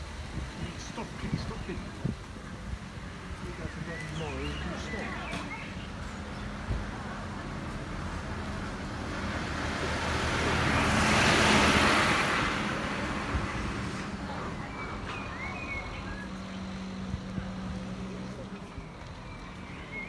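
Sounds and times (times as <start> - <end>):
low traffic hum: 0.0 - 20.0
truck driving past: 4.6 - 18.8.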